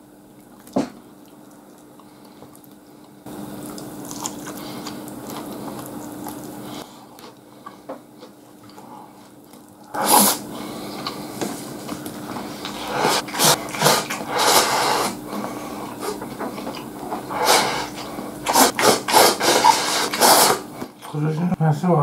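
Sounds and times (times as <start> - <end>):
man chewing food: 0.0 - 21.2
loud breathy burst: 12.6 - 16.2, 17.3 - 20.8
wet mouth clicks: 16.0 - 21.1.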